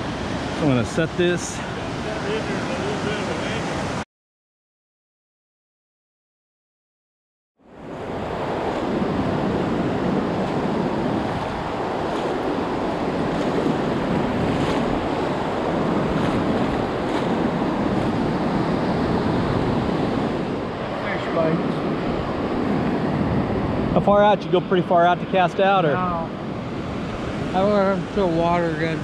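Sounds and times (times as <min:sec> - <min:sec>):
surf washing around wader: 0:00.0 - 0:04.0, 0:07.7 - 0:29.0
wind on microphone: 0:07.8 - 0:24.6.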